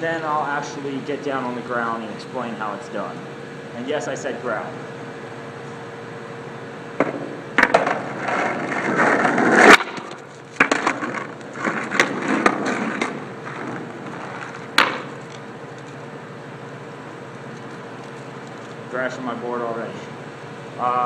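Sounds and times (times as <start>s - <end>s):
skateboard clacking on ground: 7.0s - 15.4s
skateboard wheels rolling on asphalt: 7.0s - 16.0s.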